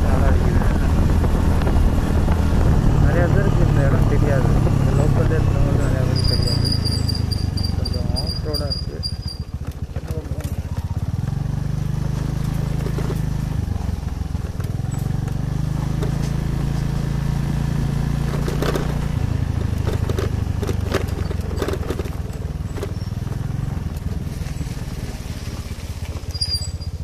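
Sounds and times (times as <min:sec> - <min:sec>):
motorcycle engine running: 0:00.0 - 0:27.0
clicks and rattles: 0:18.3 - 0:19.0, 0:19.6 - 0:23.0.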